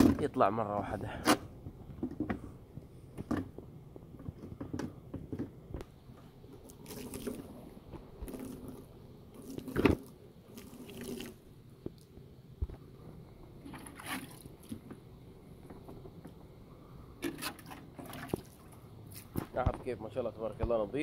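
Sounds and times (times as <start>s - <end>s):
hand rubbing wet glass: 6.7s - 11.4s.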